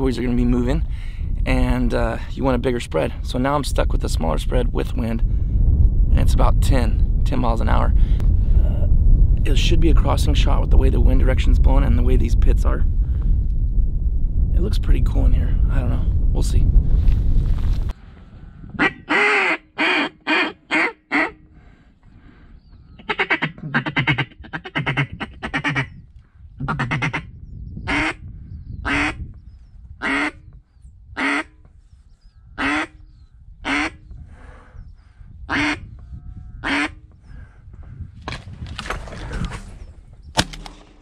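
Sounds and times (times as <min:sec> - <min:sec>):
duck quacking: 0:18.8 - 0:21.4, 0:23.0 - 0:26.0, 0:26.6 - 0:27.3, 0:30.0 - 0:30.4, 0:31.2 - 0:31.5, 0:32.6 - 0:33.0, 0:33.7 - 0:34.0, 0:35.5 - 0:35.8, 0:36.6 - 0:37.0
shotgun blast: 0:40.4 - 0:41.0.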